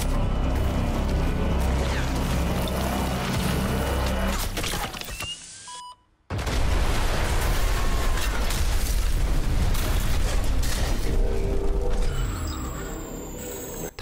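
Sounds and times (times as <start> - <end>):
loud explosion blast: 6.3 - 11.2
explosion and fire noise: 6.3 - 13.0.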